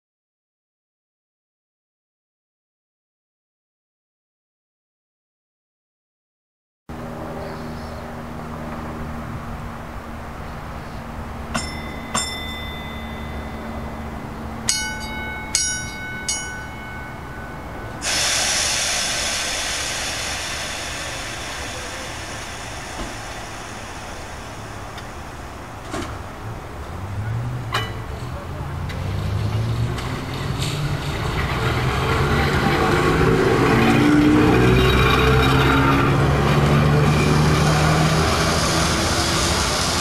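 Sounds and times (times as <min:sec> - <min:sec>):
streetcar humming: 0:06.9 - 0:40.0
streetcar bell ringing: 0:11.1 - 0:40.0
loud hiss: 0:17.9 - 0:27.1, 0:36.6 - 0:40.0.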